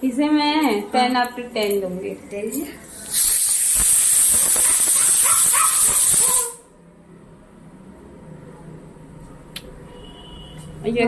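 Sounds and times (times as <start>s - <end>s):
pressure cooker hissing steam: 3.0s - 6.6s.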